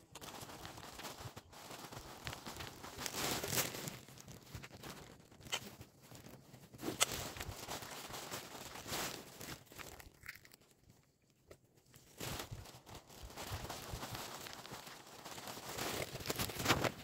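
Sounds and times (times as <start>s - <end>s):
vines and leaves rustling: 0.0s - 17.0s.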